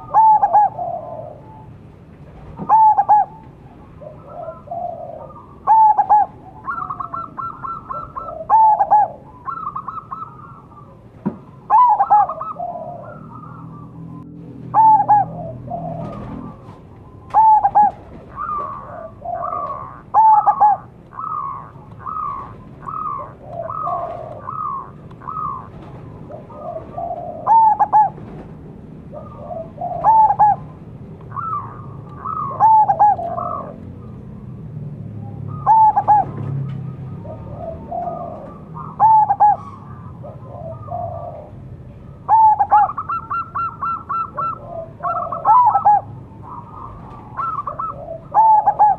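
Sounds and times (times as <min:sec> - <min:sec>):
dove cooing: 0:00.0 - 0:34.5, 0:35.2 - 0:48.9.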